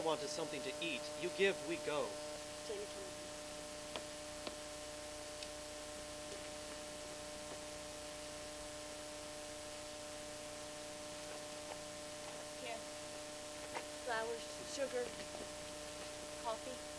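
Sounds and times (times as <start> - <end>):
electrical hum: 0.0 - 16.9
low steady hiss: 0.0 - 16.9.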